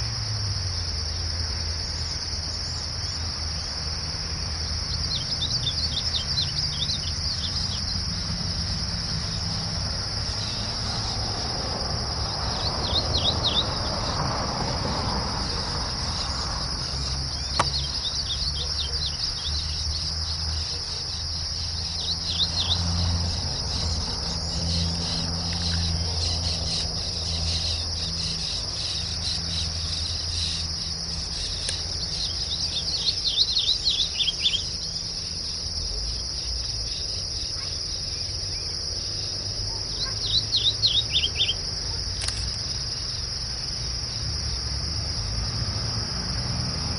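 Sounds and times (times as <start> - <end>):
high-pitched insect drone: 0.0 - 46.9
bird warbling song: 4.9 - 8.4, 12.4 - 14.1, 15.4 - 35.1, 39.9 - 41.6.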